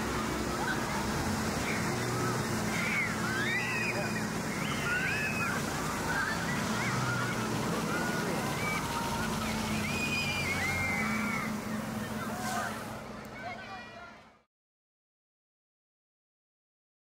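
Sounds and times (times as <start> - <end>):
water spray hissing: 0.0 - 13.1
children shrieking and shouting: 0.0 - 14.4.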